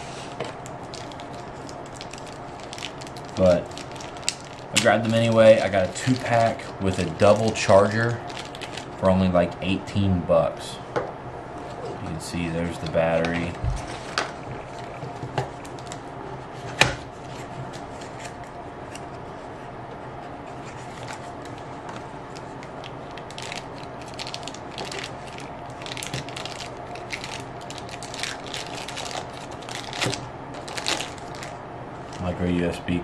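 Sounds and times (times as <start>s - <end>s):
plastic bag crinkling: 0.6s - 9.0s, 20.7s - 32.4s.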